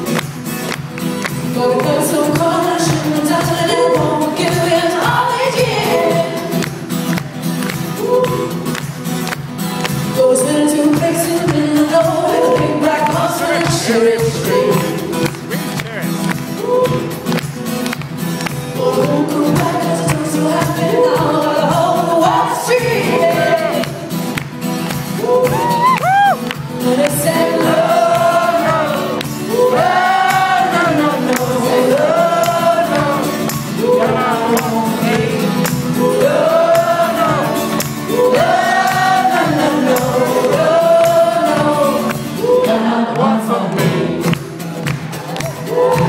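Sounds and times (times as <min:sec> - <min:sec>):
acoustic guitar: 0:00.0 - 0:46.0
woman singing: 0:01.4 - 0:06.7, 0:10.0 - 0:15.3, 0:18.8 - 0:24.1, 0:25.2 - 0:44.3.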